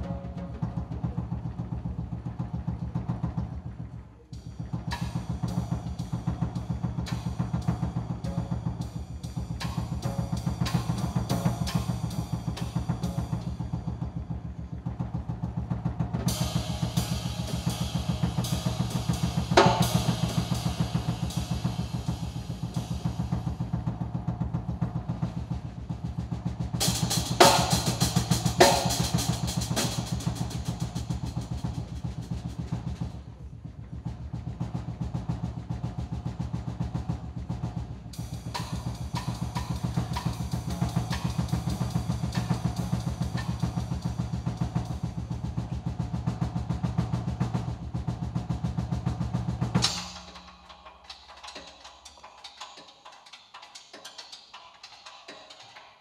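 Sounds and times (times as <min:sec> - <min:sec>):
jazz drum kit: 0:00.0 - 0:56.0.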